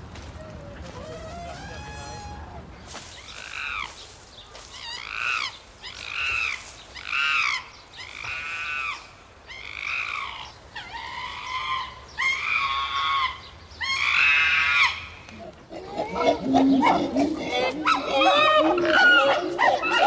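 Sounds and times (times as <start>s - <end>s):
animal calls rising and falling: 0.6s - 2.6s.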